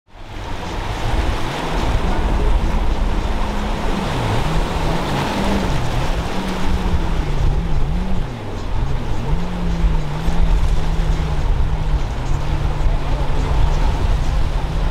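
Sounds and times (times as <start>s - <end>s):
background music with bass line: 0.1s - 14.9s
motorboat engine: 0.1s - 14.9s
rush of wake and waves: 0.1s - 14.9s.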